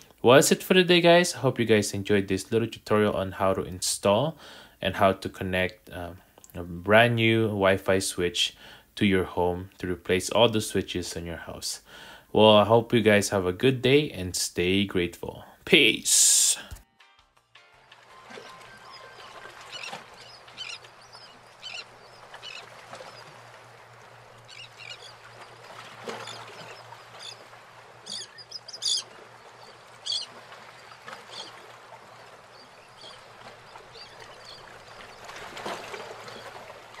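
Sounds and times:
faint steady hiss: 0:00.0 - 0:16.8
birds calling: 0:18.2 - 0:37.0.

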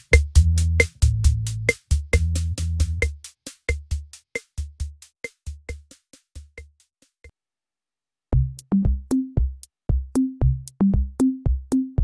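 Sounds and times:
electronic music drum machine beat: 0:00.0 - 0:07.2, 0:08.4 - 0:12.0
low bass notes: 0:00.2 - 0:03.0, 0:08.4 - 0:11.6.

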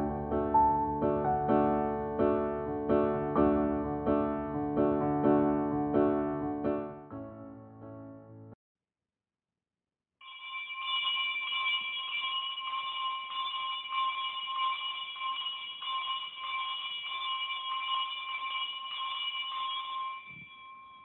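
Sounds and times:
electric bell ringing: 0:10.2 - 0:21.0.

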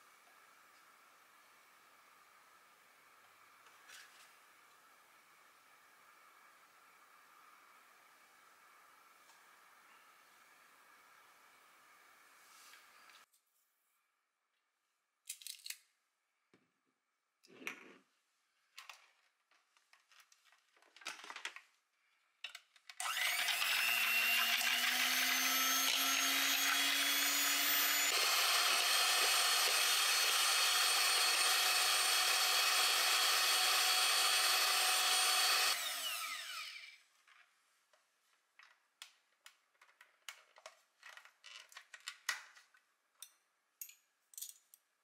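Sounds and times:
electric hand mixer whipping cream: 0:23.0 - 0:37.0.

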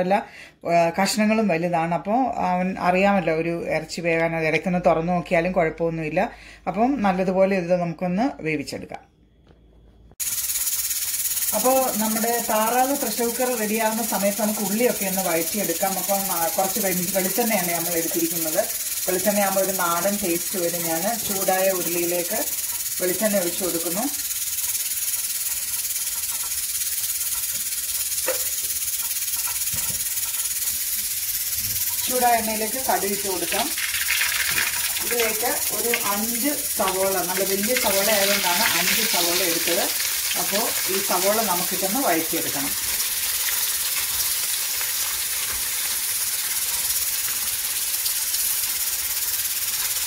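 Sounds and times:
onions sizzling in hot oil: 0:10.2 - 0:50.0
steady high hiss: 0:10.2 - 0:50.0.

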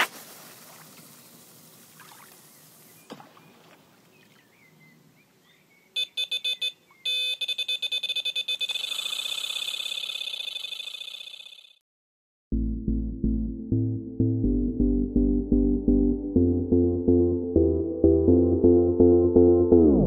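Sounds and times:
electronic bite alarm beeping: 0:06.0 - 0:11.8.

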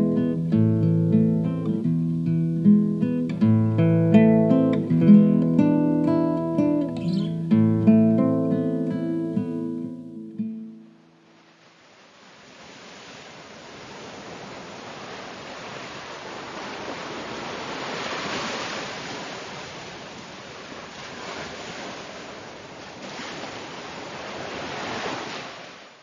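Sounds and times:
ocean surf washing onto beach: 0:11.0 - 0:26.0.

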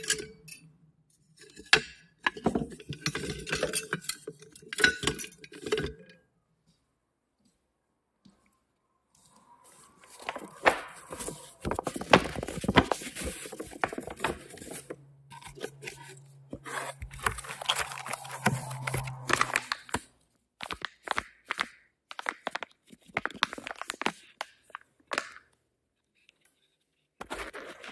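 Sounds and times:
kitchen utensils knocking and clicking: 0:00.0 - 0:00.8, 0:01.5 - 0:06.2.

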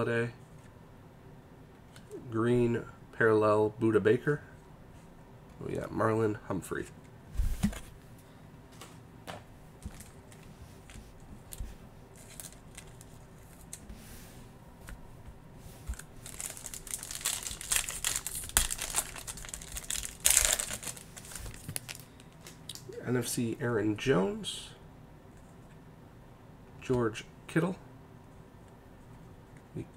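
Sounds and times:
foil wrapper crinkling: 0:11.4 - 0:13.8, 0:15.9 - 0:22.6.

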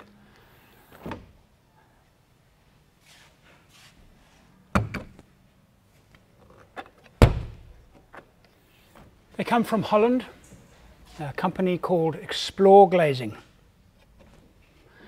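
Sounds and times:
window catch thump: 0:07.2 - 0:07.7.

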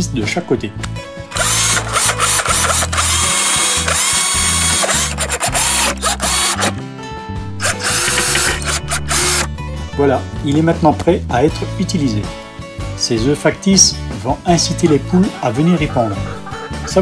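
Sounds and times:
drill driving screws into wood: 0:01.3 - 0:06.8, 0:07.6 - 0:09.5.

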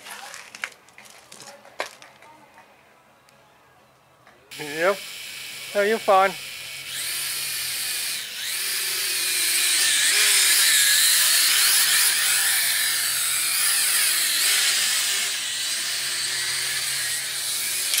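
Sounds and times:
quadcopter motors whining: 0:04.5 - 0:18.0.

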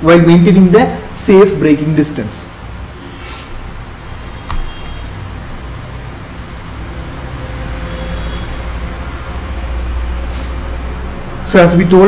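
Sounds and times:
sharp click: 0:04.4 - 0:04.7.

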